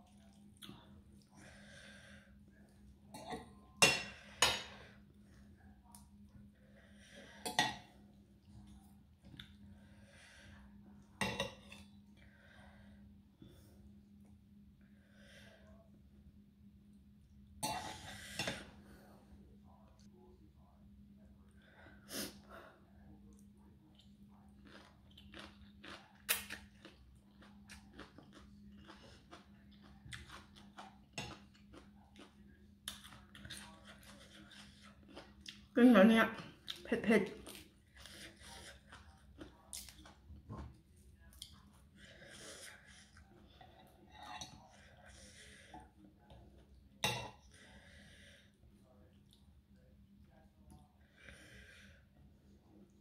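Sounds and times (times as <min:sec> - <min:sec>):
faint steady hum: 0:00.0 - 0:53.0
person chewing and slurping noodles: 0:23.8 - 0:35.7, 0:37.4 - 0:46.8.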